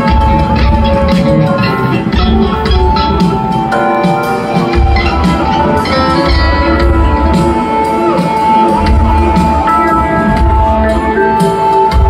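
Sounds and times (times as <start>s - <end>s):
pulsing bass: 0.0s - 3.9s, 8.7s - 12.0s
electric guitar: 0.0s - 12.0s.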